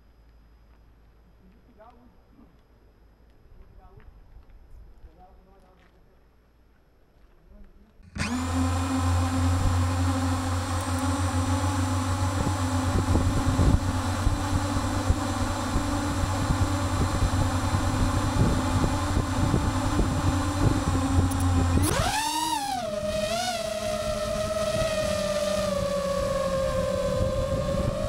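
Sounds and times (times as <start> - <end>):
drone propellers whining: 8.1 - 28.0.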